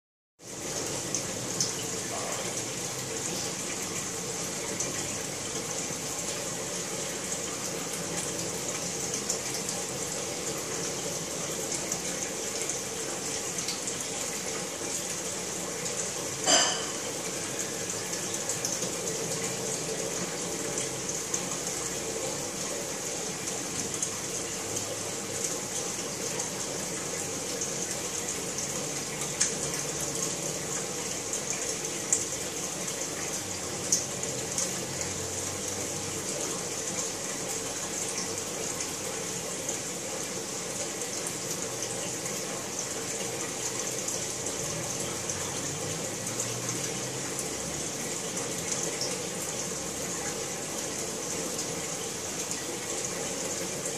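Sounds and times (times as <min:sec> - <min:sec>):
aquarium water running: 0:00.4 - 0:53.9.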